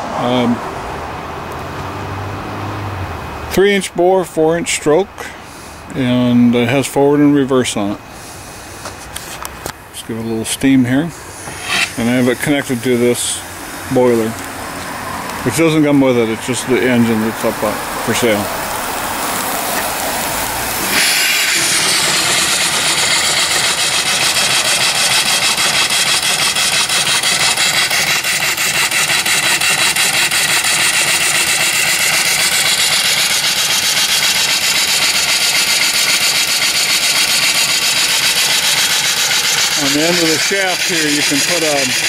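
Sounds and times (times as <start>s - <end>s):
steam engine exhaust chuffing: 10.0s - 42.0s.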